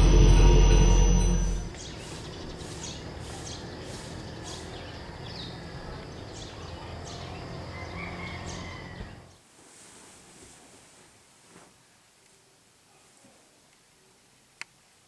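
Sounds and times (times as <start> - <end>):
steady low rumble: 0.0 - 1.8.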